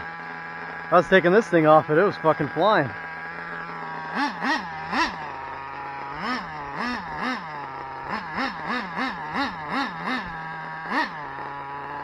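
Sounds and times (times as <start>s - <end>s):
engine throttle blips: 0.0s - 12.0s
nitro engine idling: 0.0s - 12.0s.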